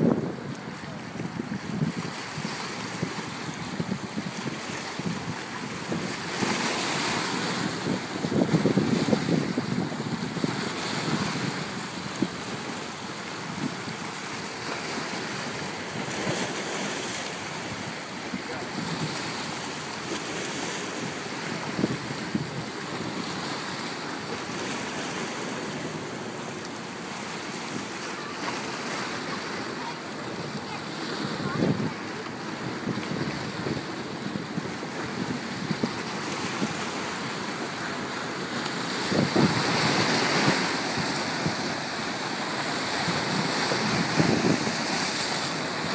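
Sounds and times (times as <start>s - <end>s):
wind buffeting microphone: 0.0s - 6.5s, 7.3s - 12.6s, 21.5s - 23.3s, 38.7s - 45.9s
waves splashing: 0.0s - 45.9s.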